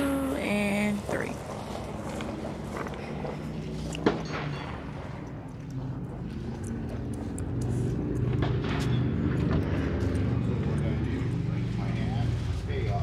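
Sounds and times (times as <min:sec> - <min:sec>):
car engine humming: 0:04.9 - 0:13.0.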